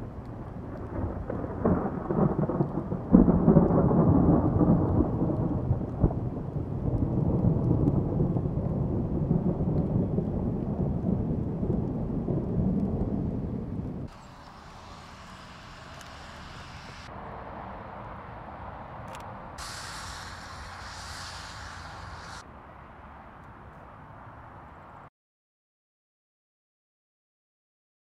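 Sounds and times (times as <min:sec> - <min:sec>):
thunder rumble: 0:00.0 - 0:17.8, 0:19.6 - 0:22.4
sharp thunder crack: 0:00.8 - 0:17.1, 0:19.6 - 0:22.4.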